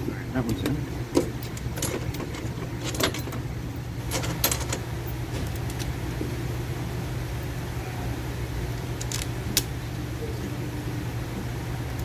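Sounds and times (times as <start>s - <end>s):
steady low hum: 0.0s - 12.0s
metal clicks and knocks: 0.4s - 3.4s.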